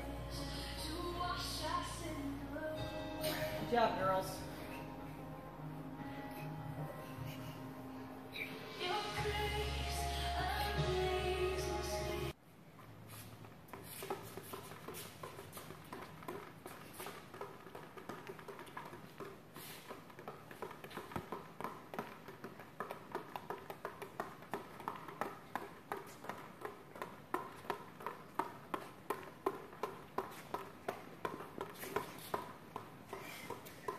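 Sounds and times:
basketballs bouncing on concrete: 0:13.7 - 0:33.9.

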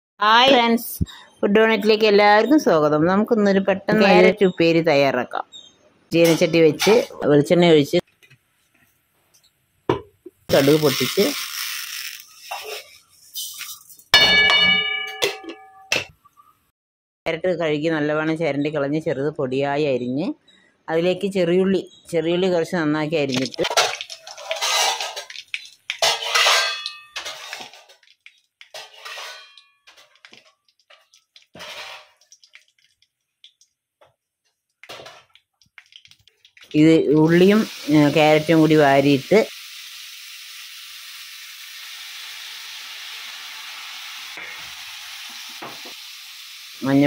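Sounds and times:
oil sizzling and spattering: 0:09.8 - 0:14.2, 0:23.2 - 0:47.0.

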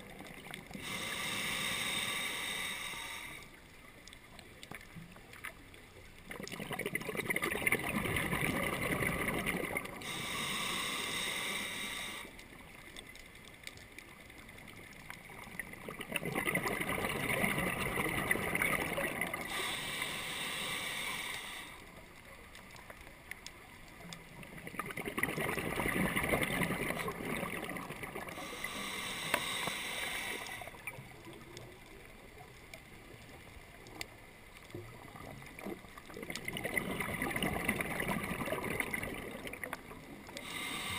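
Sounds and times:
regulator inhale hiss: 0:00.7 - 0:03.6, 0:10.0 - 0:12.5, 0:19.4 - 0:22.0, 0:28.3 - 0:31.1, 0:40.3 - 0:40.9
exhaled bubbles rushing: 0:06.3 - 0:10.0, 0:15.3 - 0:19.5, 0:24.5 - 0:28.4, 0:35.0 - 0:40.4.

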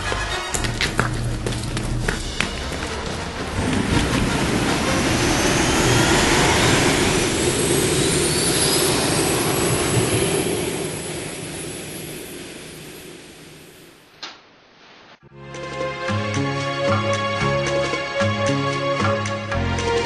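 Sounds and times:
spaceship engine roar fly-by: 0:02.0 - 0:13.8.

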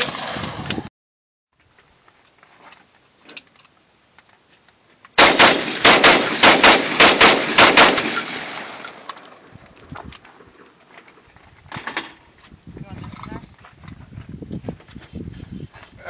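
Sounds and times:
rifle shots: 0:05.2 - 0:09.1.

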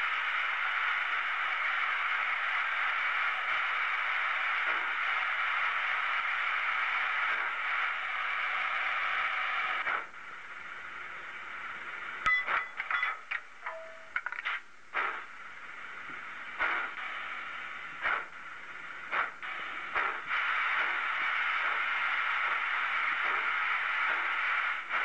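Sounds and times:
steady hissing: 0:14.9 - 0:25.0.

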